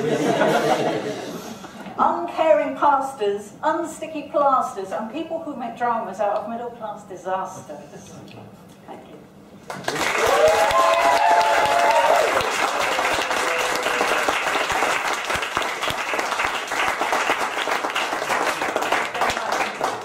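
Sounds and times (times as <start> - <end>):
audience clapping: 9.6 - 20.0
voices whooping: 10.2 - 12.6.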